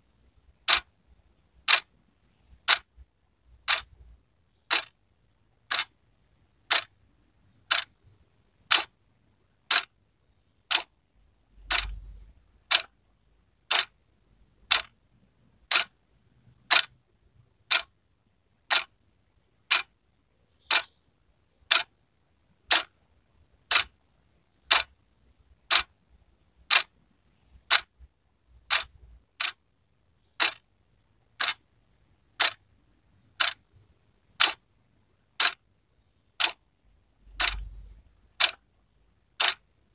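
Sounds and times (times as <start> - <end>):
wall clock ticking: 0.4 - 5.0, 5.6 - 6.0, 6.6 - 7.0, 7.6 - 9.0, 9.6 - 10.0, 10.7 - 11.0, 11.6 - 13.0, 13.6 - 15.0, 15.6 - 17.0, 17.6 - 18.0, 18.6 - 19.0, 19.6 - 20.0, 20.6 - 21.0, 21.6 - 22.0, 22.6 - 23.0, 23.6 - 25.0, 25.6 - 26.0, 26.6 - 31.6, 32.2 - 36.6, 37.2 - 39.9.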